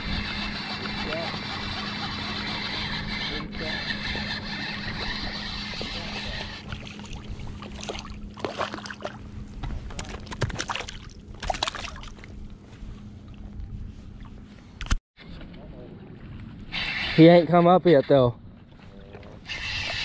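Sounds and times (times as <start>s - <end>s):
water splashing and sloshing: 4.0s - 16.7s, 18.5s - 20.0s.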